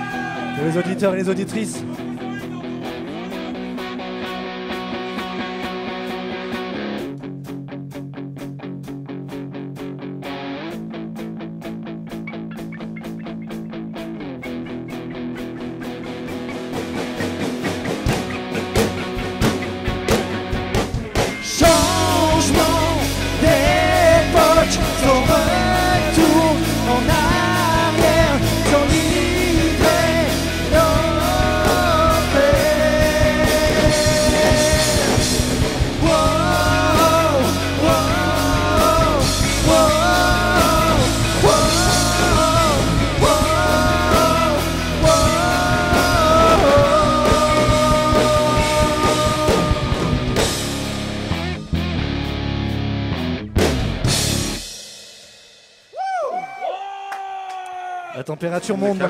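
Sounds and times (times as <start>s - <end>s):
electric guitar: 0.0s - 54.8s
bass guitar: 0.0s - 54.9s
drum kit: 0.0s - 56.6s
person singing: 21.2s - 50.7s.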